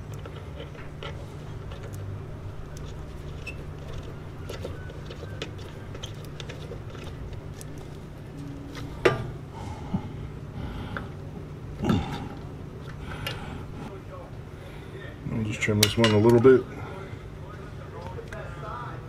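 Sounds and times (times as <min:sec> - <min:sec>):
hands handling plastic and wires: 0:00.0 - 0:09.3
steady low hum: 0:00.0 - 0:19.0.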